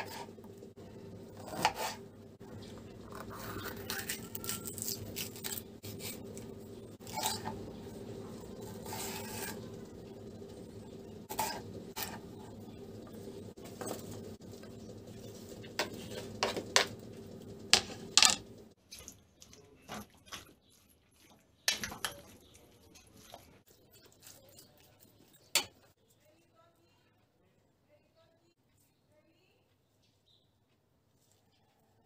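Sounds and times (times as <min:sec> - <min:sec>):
metal spoon stirring in metal bowl: 0:00.0 - 0:00.6, 0:02.7 - 0:17.0, 0:17.7 - 0:26.5
steady low hum: 0:00.0 - 0:18.8.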